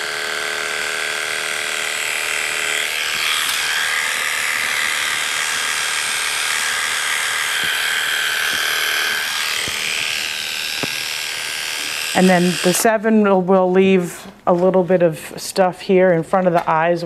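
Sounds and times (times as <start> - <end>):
electric clipper humming: 0.0 - 13.5.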